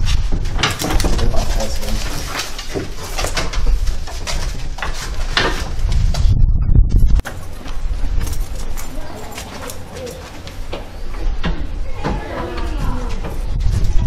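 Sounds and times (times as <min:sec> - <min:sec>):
steady low rumble: 0:03.6 - 0:09.9.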